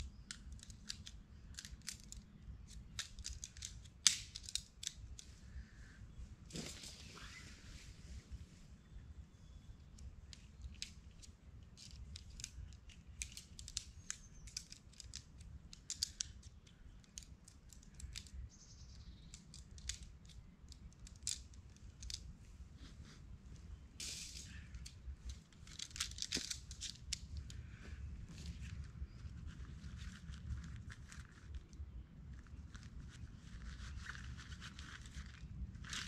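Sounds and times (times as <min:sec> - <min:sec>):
small tool clicks and snips: 0:00.2 - 0:05.3
rustling: 0:06.4 - 0:08.7, 0:20.8 - 0:36.0.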